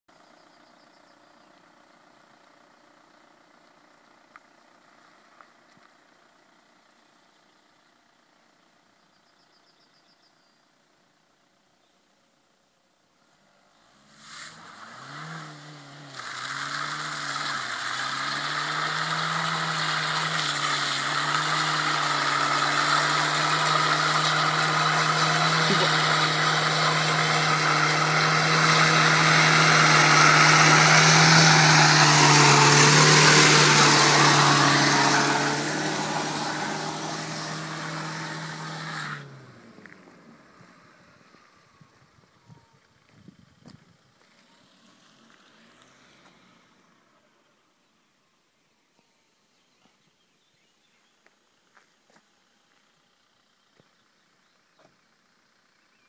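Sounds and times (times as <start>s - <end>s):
car engine revving: 13.3s - 42.2s
tyres spinning on wet asphalt: 13.9s - 41.4s.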